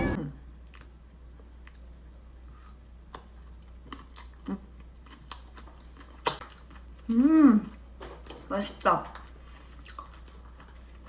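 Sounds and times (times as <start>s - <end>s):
low hum: 0.0s - 3.1s
person chewing food: 0.6s - 8.5s, 9.2s - 11.0s
mouth clicks and smacks: 6.2s - 6.6s.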